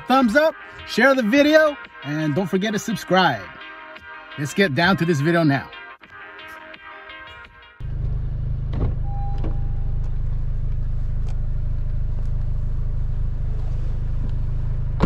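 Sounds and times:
car engine idling: 0:07.8 - 0:15.0
short beep: 0:09.0 - 0:10.0.

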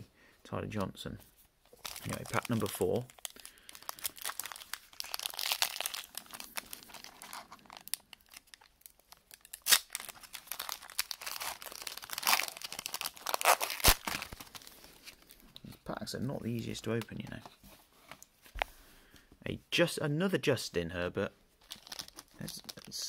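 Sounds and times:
foil wrapper crinkling and tearing: 0:01.7 - 0:15.4, 0:21.6 - 0:23.0.

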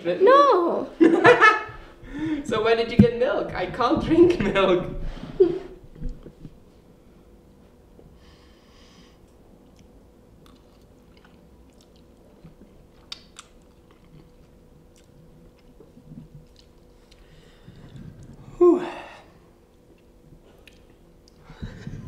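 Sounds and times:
person chewing noodles: 0:09.3 - 0:18.5, 0:19.7 - 0:21.5.

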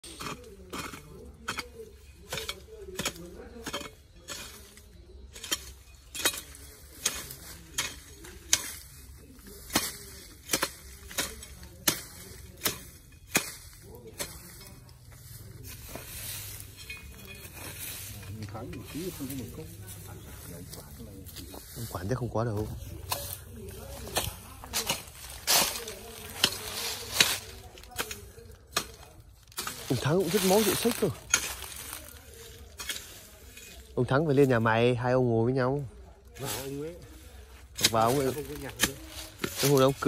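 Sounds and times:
rustling of weeds being pulled: 0:00.1 - 0:40.0
hoe chopping into soil: 0:09.7 - 0:14.6.

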